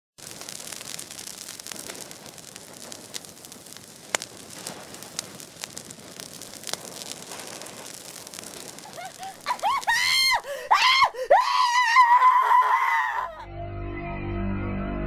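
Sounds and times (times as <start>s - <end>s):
fire crackling: 0.1s - 13.4s
sharp pops: 0.2s - 10.4s
steady hiss: 0.2s - 10.7s.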